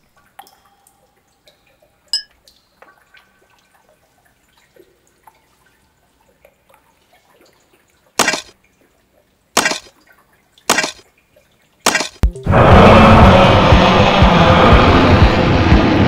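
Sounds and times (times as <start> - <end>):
water dripping: 0.0 - 12.4.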